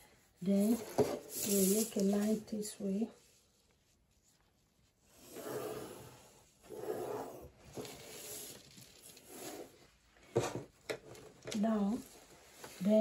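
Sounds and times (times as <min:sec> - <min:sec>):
pencil scratching on paper: 0:05.1 - 0:08.6.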